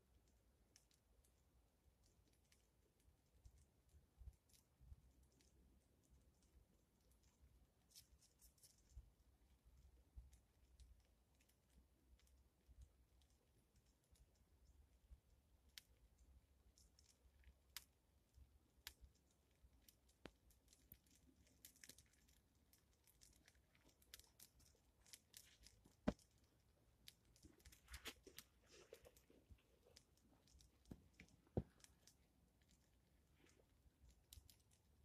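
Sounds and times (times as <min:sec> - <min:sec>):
twig fire crackling and popping: 0:15.6 - 0:35.0.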